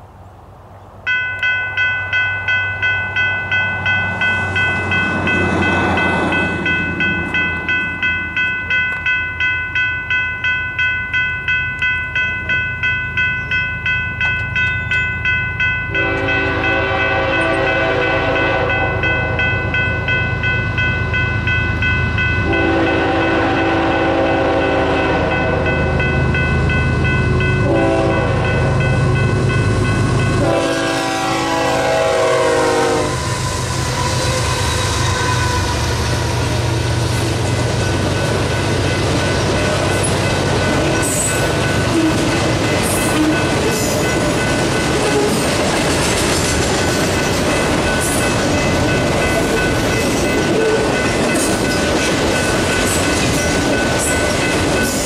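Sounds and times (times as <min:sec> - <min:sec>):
crossing bell dinging rapidly: 0:01.1 - 0:55.0
train horn blasts: 0:15.9 - 0:19.5, 0:22.4 - 0:26.2, 0:27.6 - 0:29.3, 0:30.0 - 0:36.4.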